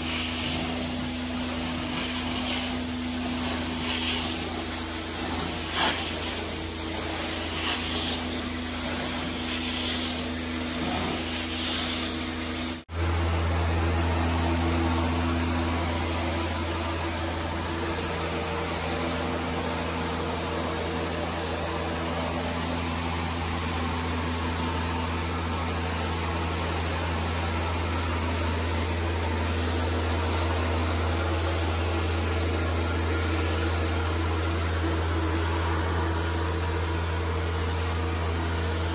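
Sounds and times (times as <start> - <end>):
cleaning wand hissing: 0.0 - 12.8
spray hiss: 0.0 - 12.8
machine drone: 0.0 - 38.9.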